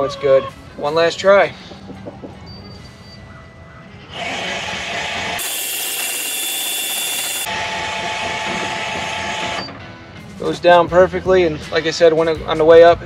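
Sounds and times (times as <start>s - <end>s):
electric motor driving door: 4.1s - 9.8s.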